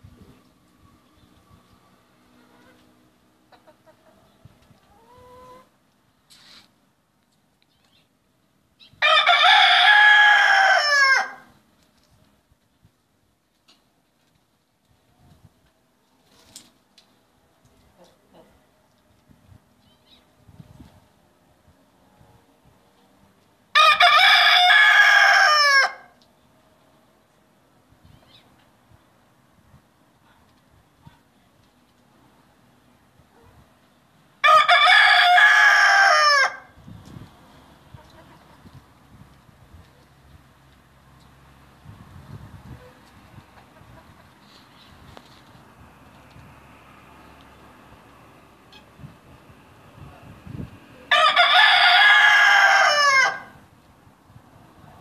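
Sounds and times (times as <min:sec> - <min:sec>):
rooster crowing: 0:09.0 - 0:11.5, 0:23.7 - 0:26.1, 0:34.4 - 0:36.7, 0:51.1 - 0:53.6.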